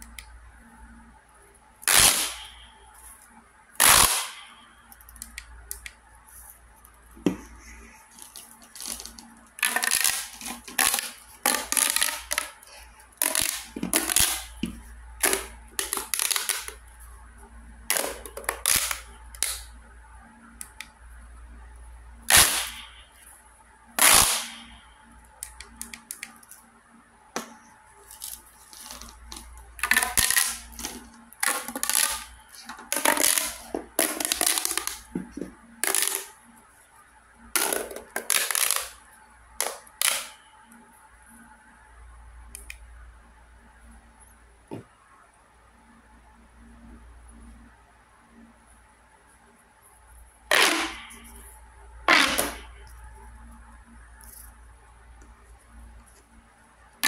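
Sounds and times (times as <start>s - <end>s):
plastic pop tube popping: 8.8s - 12.6s, 13.2s - 16.8s, 28.7s - 36.3s, 37.6s - 39.0s, 50.5s - 51.2s, 52.1s - 52.7s.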